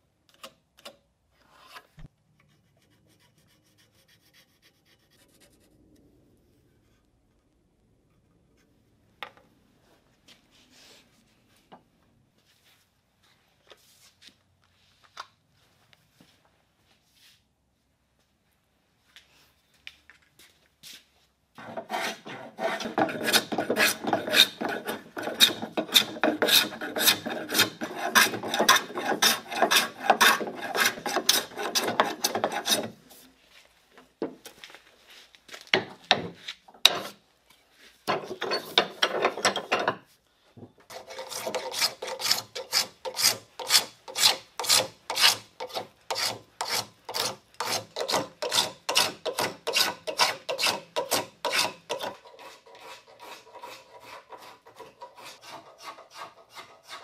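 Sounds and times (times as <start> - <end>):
hand tool shaving wood: 21.6 - 33.0, 40.9 - 57.0
rasp filing wood: 21.6 - 33.0, 40.9 - 57.0.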